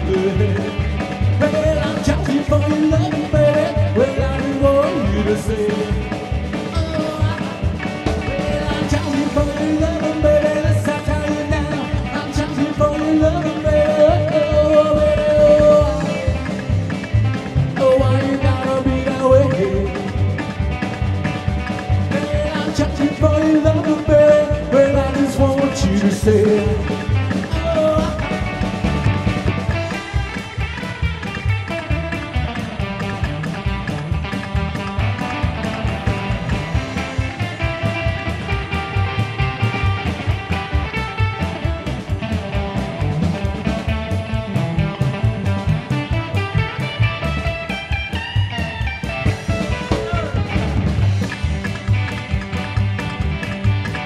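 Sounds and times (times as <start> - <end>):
man singing: 0.0 - 20.4, 22.0 - 29.0
drums: 0.0 - 54.0
electric guitar: 0.0 - 54.0
upright double bass: 0.0 - 54.0.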